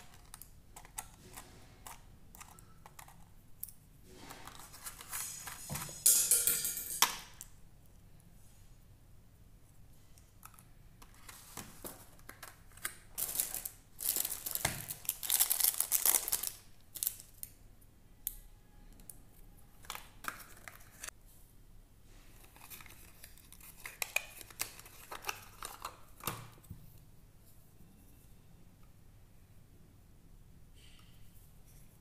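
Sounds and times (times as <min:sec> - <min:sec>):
plastic wrapping crinkling and tearing: 0:11.2 - 0:17.5.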